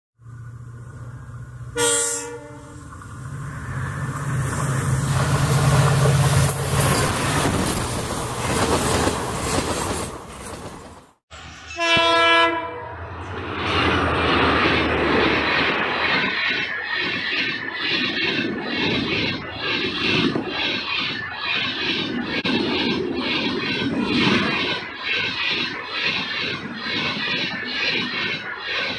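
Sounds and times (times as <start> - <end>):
diesel locomotive engine: 0.2 - 28.9
train passing at speed: 0.2 - 28.9
train horn blast: 1.7 - 2.9, 11.4 - 13.0.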